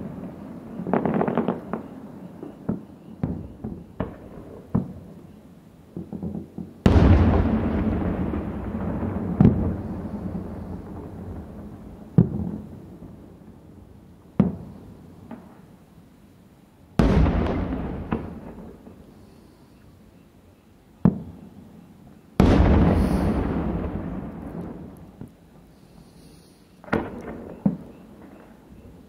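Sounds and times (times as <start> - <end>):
firework shells bursting: 22.4 - 28.5.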